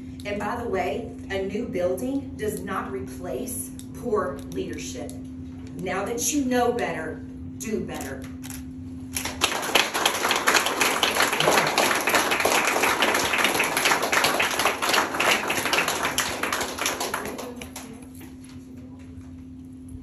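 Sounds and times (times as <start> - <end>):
audience clapping: 9.1 - 18.2.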